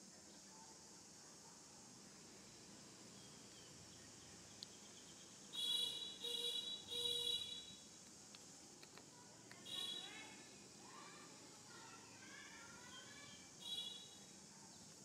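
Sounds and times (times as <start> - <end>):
high insect drone: 0.0 - 15.0.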